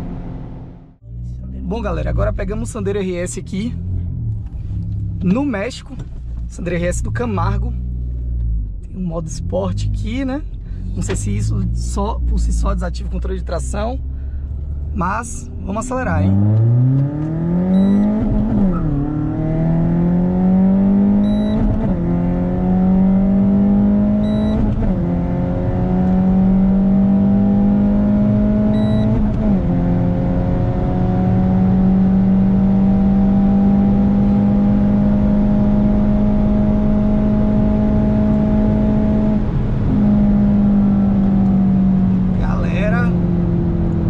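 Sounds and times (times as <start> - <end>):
car engine accelerating: 0.0 - 44.0
short electronic beep: 17.7 - 18.2, 21.2 - 21.7, 24.2 - 24.6, 28.7 - 29.1.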